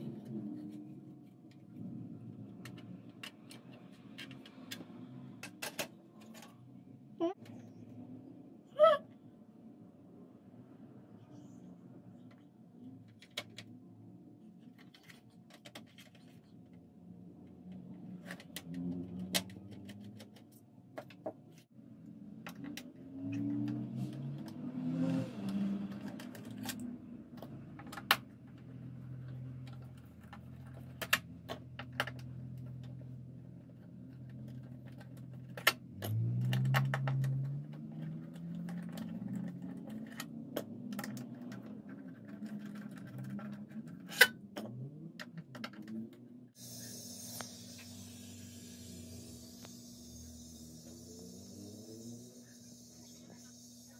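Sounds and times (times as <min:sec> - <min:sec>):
metal and plastic parts clattering: 0:02.5 - 0:06.6, 0:14.6 - 0:16.7, 0:29.2 - 0:46.2.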